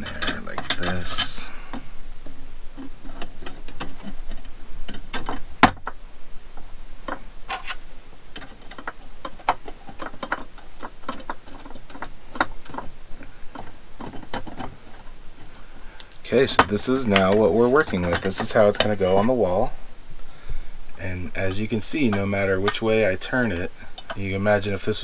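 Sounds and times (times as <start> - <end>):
small metal clicks and taps: 8.4 - 15.0.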